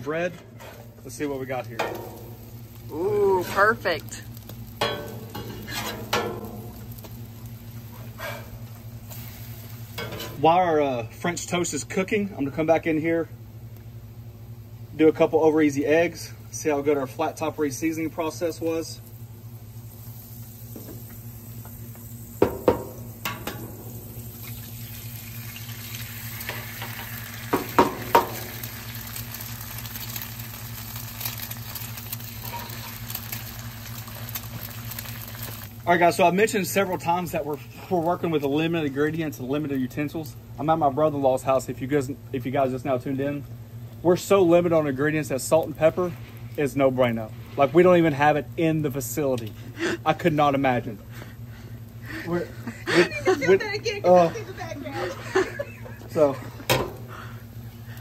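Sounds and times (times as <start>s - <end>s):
eggs sizzling on griddle: 0.0s - 12.9s, 13.7s - 58.0s
low steady hum: 0.0s - 58.0s
metal spatula scraping griddle: 0.2s - 1.2s, 4.8s - 6.7s, 8.0s - 8.6s, 10.0s - 10.4s.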